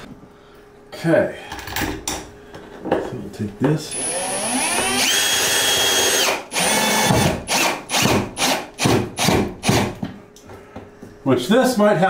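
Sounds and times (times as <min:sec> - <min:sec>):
power drill whining: 0:03.9 - 0:09.8.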